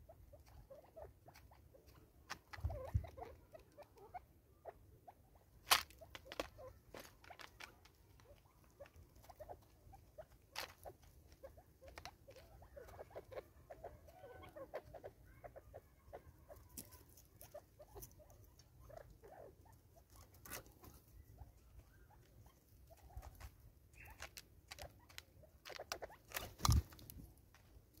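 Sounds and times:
soft low bird calls: 0:12.3 - 0:27.1.

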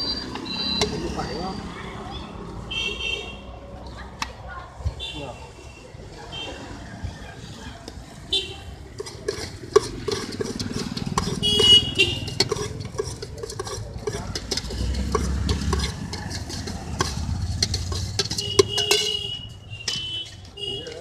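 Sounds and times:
high-pitched beep: 0:00.0 - 0:01.7
road traffic rumble: 0:00.0 - 0:21.0
metal clinking in steel bowl: 0:09.0 - 0:21.0.

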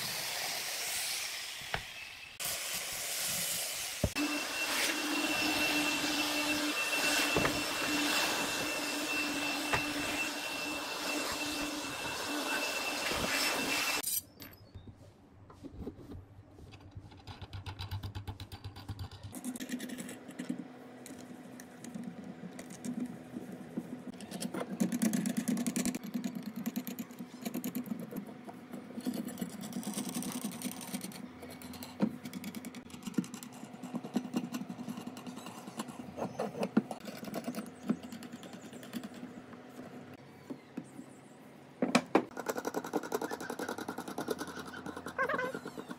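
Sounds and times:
electric orbital sander running: 0:03.9 - 0:14.0.

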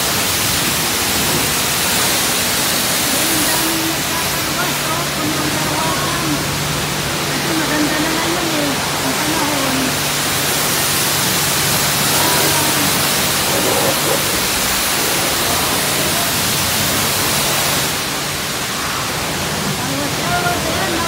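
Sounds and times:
pressure washer spray hissing: 0:08.8 - 0:18.2.

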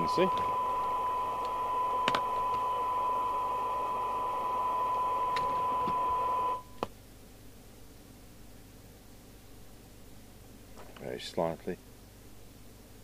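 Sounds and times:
radio background hiss: 0:00.0 - 0:03.0
steady test tone: 0:00.0 - 0:06.7.

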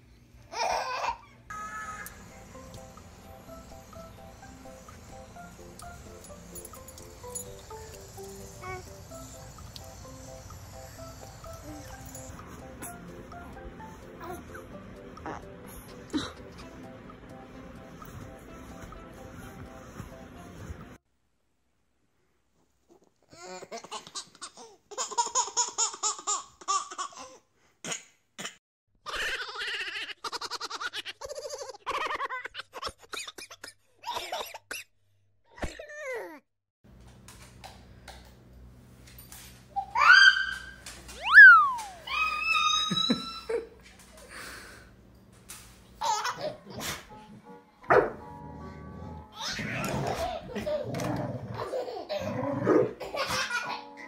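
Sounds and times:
baby laughing: 0:00.5 - 0:01.4, 0:23.3 - 0:27.4, 0:29.1 - 0:34.6, 0:46.0 - 0:47.0, 0:49.3 - 0:52.4, 0:53.0 - 0:54.0
baby laughing and squealing: 0:00.5 - 0:02.1, 0:39.8 - 0:43.7, 0:46.0 - 0:46.8, 0:49.3 - 0:51.0
background music: 0:01.5 - 0:21.0, 0:46.6 - 0:50.2.

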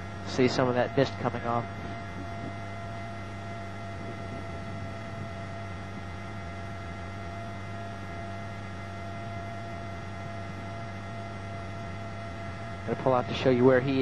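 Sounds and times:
steady hum: 0:00.0 - 0:14.0
whining tones: 0:00.0 - 0:14.0.

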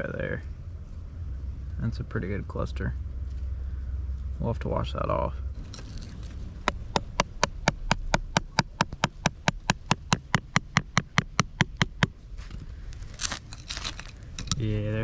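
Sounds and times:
digging tool chipping rock: 0:13.1 - 0:14.7.

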